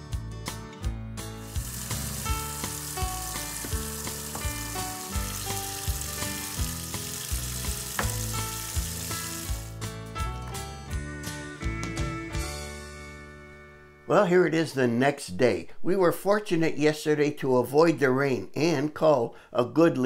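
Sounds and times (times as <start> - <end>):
background music with beat: 0.0 - 13.5
tap water running into sink: 1.4 - 9.8.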